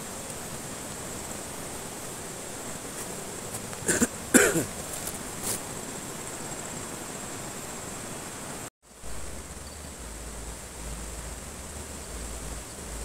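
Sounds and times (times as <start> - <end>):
man coughing: 3.8 - 4.7.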